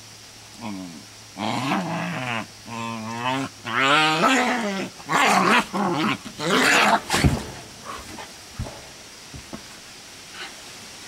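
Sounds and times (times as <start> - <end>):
dogs growling and snarling: 0.6 - 8.9
thump: 7.1 - 9.7.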